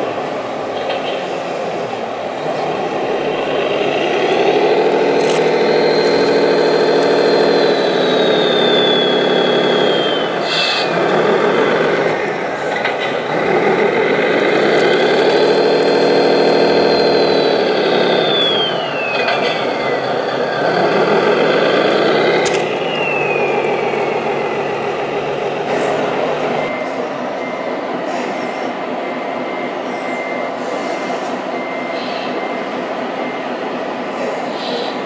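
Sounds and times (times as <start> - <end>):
model truck motor whine: 2.4 - 27.5.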